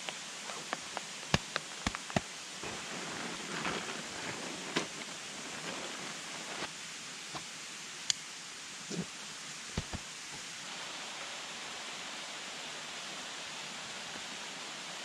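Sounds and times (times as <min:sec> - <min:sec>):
mountain stream rushing: 0:00.0 - 0:15.0
plastic tarp rustling: 0:01.8 - 0:06.7.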